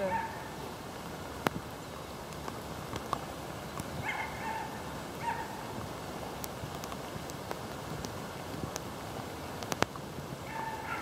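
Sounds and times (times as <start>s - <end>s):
dog yipping: 4.0s - 5.6s, 10.5s - 11.0s.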